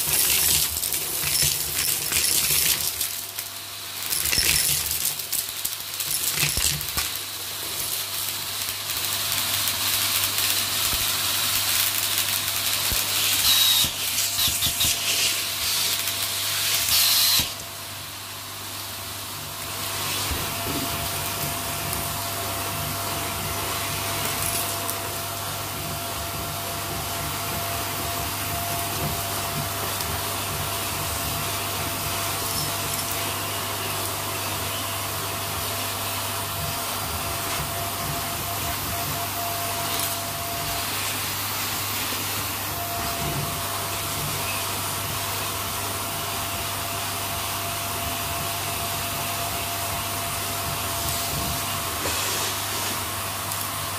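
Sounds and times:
debris crunching up vacuum hose: 0.0s - 17.6s, 19.8s - 25.4s
vacuum cleaner running: 0.0s - 53.9s.

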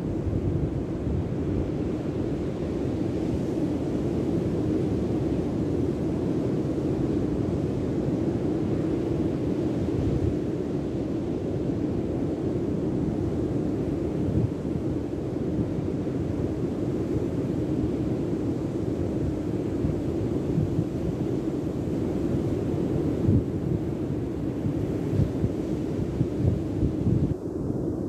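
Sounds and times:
wind buffeting microphone: 22.6s - 28.0s.

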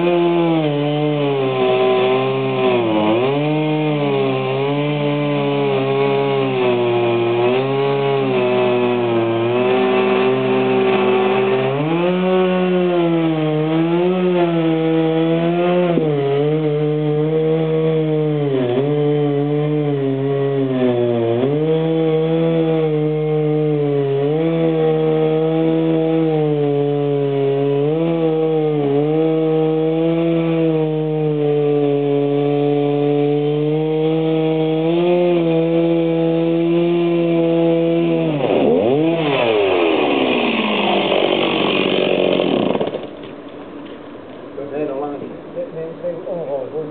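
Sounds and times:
chainsaw engine running: 0.0s - 46.8s.

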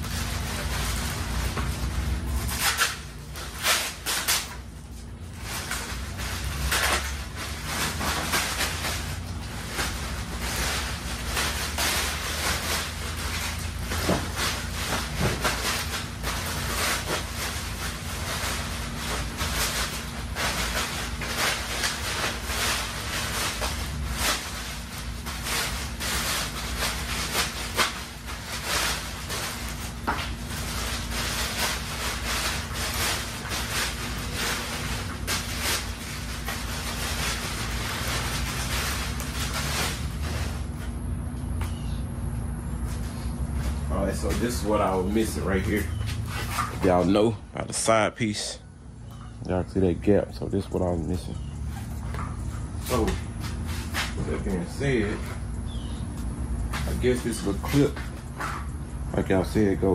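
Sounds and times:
plastic packaging crinkling: 0.0s - 41.0s.

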